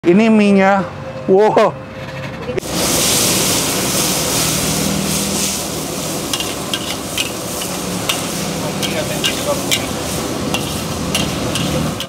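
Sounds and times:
noodles sizzling in a wok: 2.6 - 12.0
metal spatula scraping a wok: 3.9 - 12.0.

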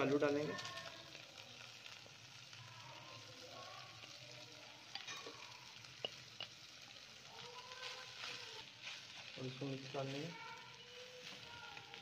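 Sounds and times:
food sizzling in frying pan: 0.0 - 12.0
spatula tapping pan: 4.9 - 6.6.

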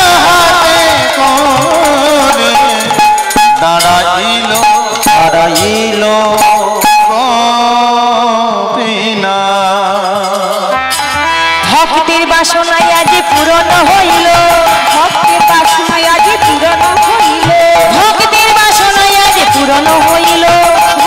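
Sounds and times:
percussion strokes: 0.0 - 7.9, 9.6 - 21.0
instrumental accompaniment: 0.0 - 21.0
woman singing: 11.6 - 21.0.

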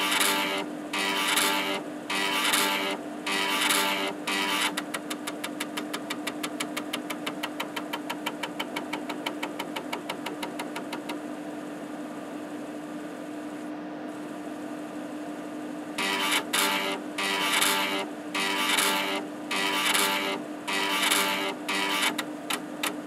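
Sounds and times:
rapid buzzing of head movement: 16.0 - 22.2.

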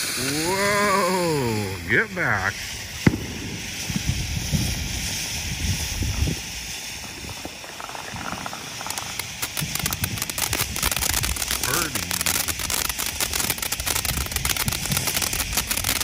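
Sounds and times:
firework fountain hissing: 0.0 - 16.0.

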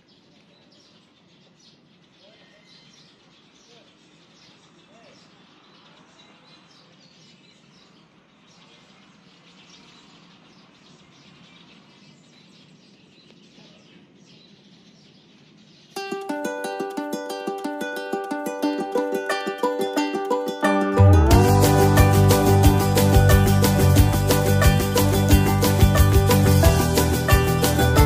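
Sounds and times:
small birds chirping: 0.0 - 28.0
ukulele music: 16.0 - 28.0.

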